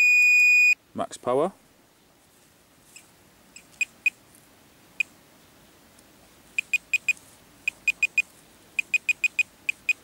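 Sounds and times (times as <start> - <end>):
short high-pitched beeps: 0.0 - 0.8, 6.6 - 10.0.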